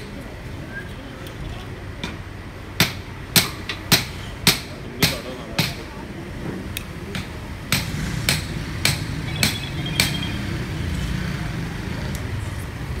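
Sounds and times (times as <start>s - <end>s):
sharp hammer-like knocks: 2.8s - 5.9s, 7.1s - 10.4s.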